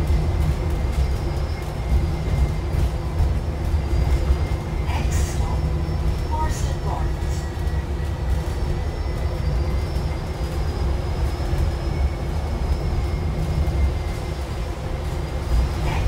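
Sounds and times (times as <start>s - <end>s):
bus road rumble: 0.0s - 16.0s.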